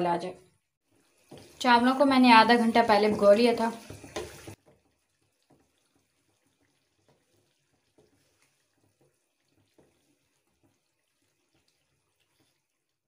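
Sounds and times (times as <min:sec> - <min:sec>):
wooden spatula scraping a pan: 0:00.8 - 0:13.0.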